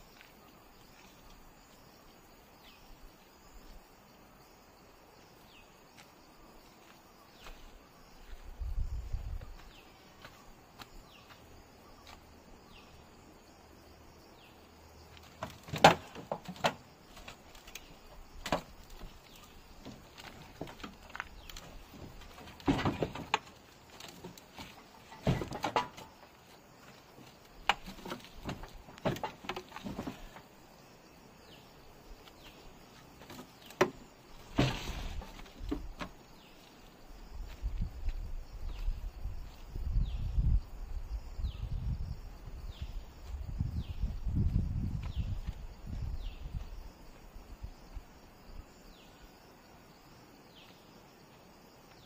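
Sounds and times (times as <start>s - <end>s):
faint insects chirping: 0.0s - 52.0s
clunks thumps and scrapes: 15.2s - 30.5s, 33.1s - 36.5s.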